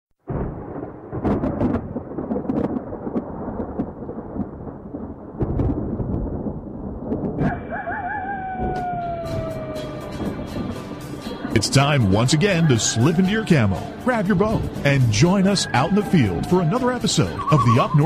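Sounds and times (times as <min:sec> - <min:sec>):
thunder rumbles and cracks: 0:00.2 - 0:18.0
rain hissing: 0:09.9 - 0:18.0
wavering falling call: 0:15.4 - 0:18.0.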